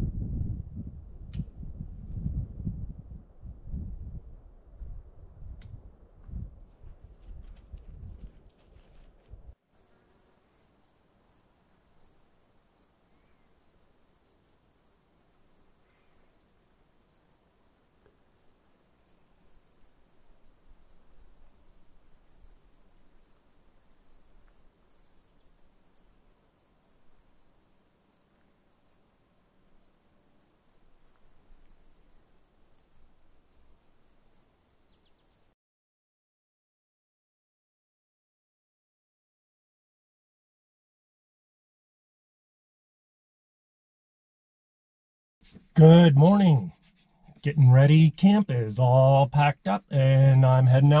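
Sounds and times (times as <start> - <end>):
crickets chirping: 9.8 - 35.5.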